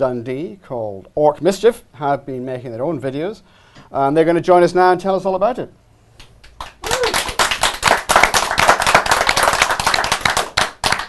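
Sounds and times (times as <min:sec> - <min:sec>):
audience clapping: 0:06.2 - 0:11.0.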